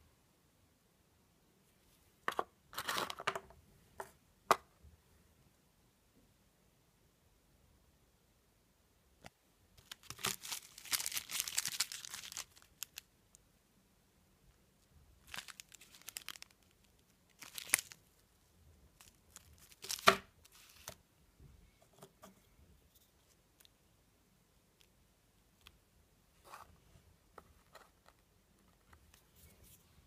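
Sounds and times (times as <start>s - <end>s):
paper wrapper crinkling: 9.8s - 13.1s, 15.2s - 18.4s, 19.0s - 21.0s.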